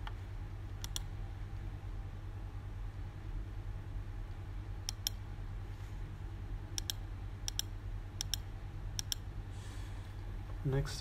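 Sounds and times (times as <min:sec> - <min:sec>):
steady low hum: 0:00.0 - 0:11.0
computer mouse button clicking: 0:00.8 - 0:01.1, 0:04.9 - 0:05.2, 0:06.8 - 0:08.4, 0:09.0 - 0:09.2.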